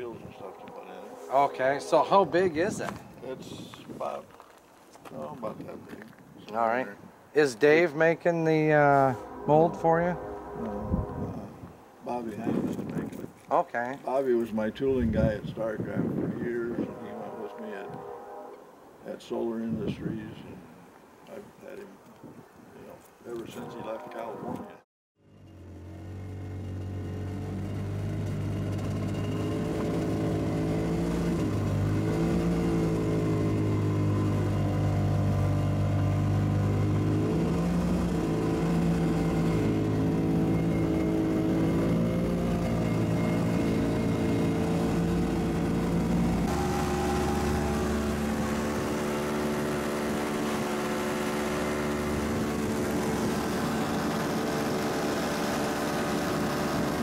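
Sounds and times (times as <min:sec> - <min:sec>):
atv engine running: 0:25.3 - 0:57.0.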